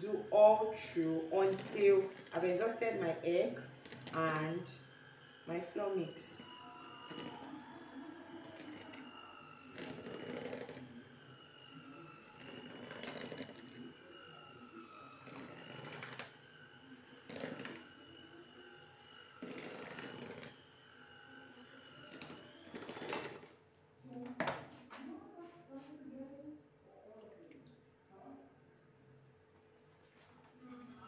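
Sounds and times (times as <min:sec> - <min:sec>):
mixer knocking: 0:00.0 - 0:23.5
electric hand mixer whining: 0:00.0 - 0:23.6.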